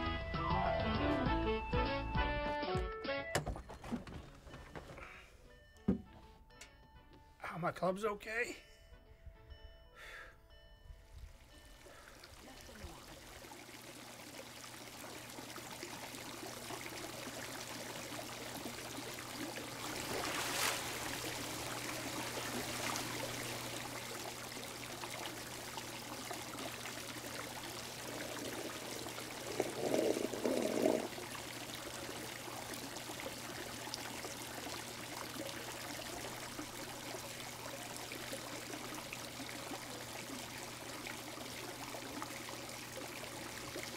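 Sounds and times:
hot tub water bubbling: 11.4s - 43.9s.

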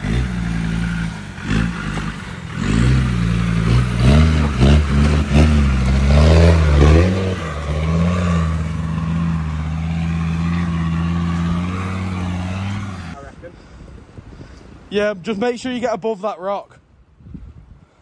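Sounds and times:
car engine revving: 0.0s - 13.2s.

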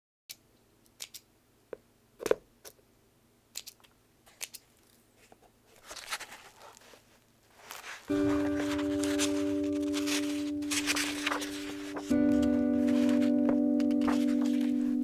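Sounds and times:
paper rustling: 5.2s - 15.0s.

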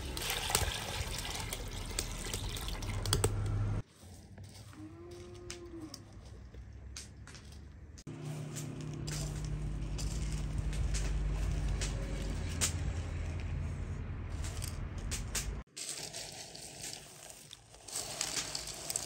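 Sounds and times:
dried berries rustling and clicking: 3.9s - 13.7s, 14.3s - 19.0s
low background rumble: 7.9s - 15.7s.

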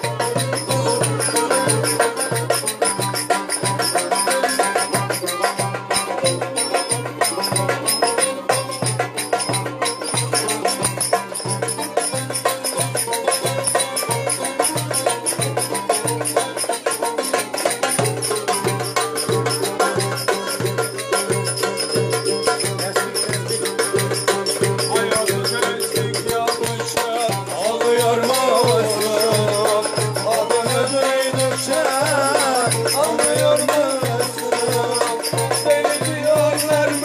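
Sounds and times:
folk dance tune on lute: 0.0s - 37.0s
steady low drum beat: 17.9s - 37.0s.

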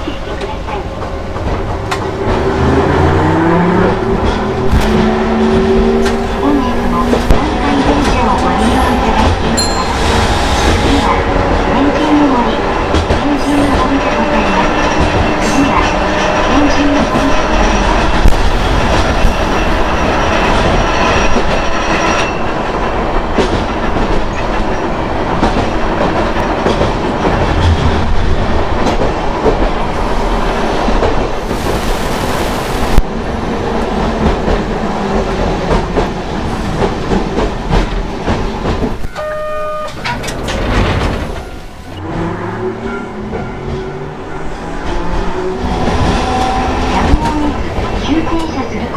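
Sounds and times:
tram motors humming: 0.0s - 31.4s.

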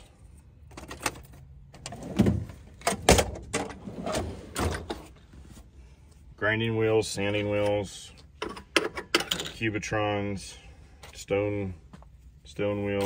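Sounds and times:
tool drawers sliding: 0.8s - 5.2s
tools clacking and rattling: 8.4s - 9.6s.

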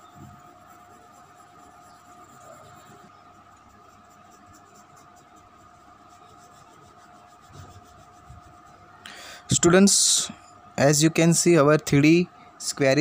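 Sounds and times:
pencil scratching on paper: 0.0s - 9.0s
faint hum: 0.0s - 13.0s.

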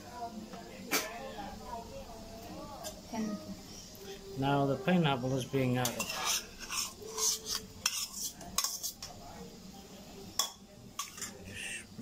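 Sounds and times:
stirring in a metal pot: 5.4s - 9.2s, 10.4s - 11.8s
metal spoon scraping a bowl: 5.8s - 9.1s, 11.0s - 11.8s.

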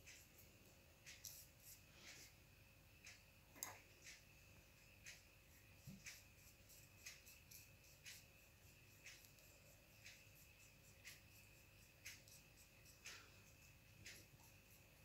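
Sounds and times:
faint steady high whine: 0.0s - 15.0s
faint sharp clicks: 5.0s - 13.4s.

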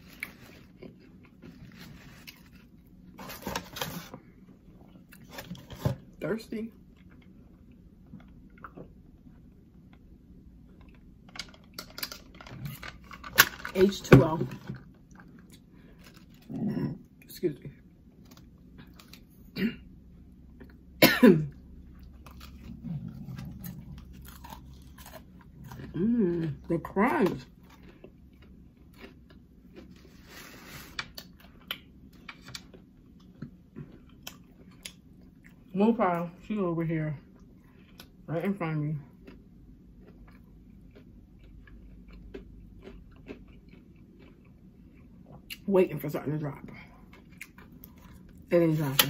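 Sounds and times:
person chewing fries: 0.0s - 5.8s, 6.8s - 13.9s, 14.6s - 17.3s, 17.9s - 19.6s, 20.2s - 35.7s, 37.3s - 45.7s, 46.7s - 49.0s
woman coughing: 19.6s - 19.9s, 21.0s - 21.6s.

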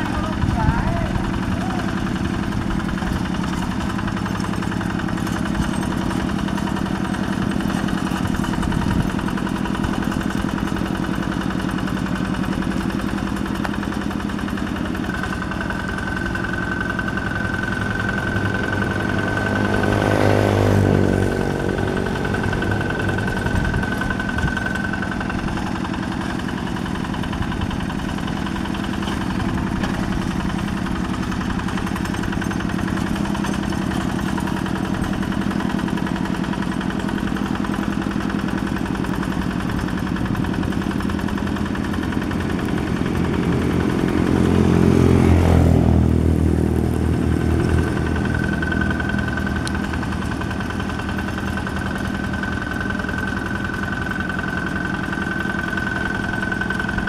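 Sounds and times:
diesel tractor engine running: 0.0s - 57.0s.

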